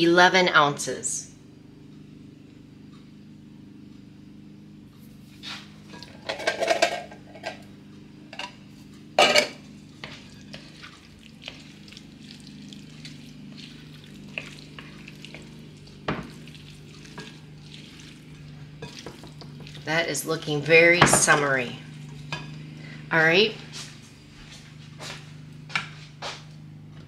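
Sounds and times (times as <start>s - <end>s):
steady low hum: 0.0s - 27.0s
taps and scrapes of stirring: 10.0s - 20.0s.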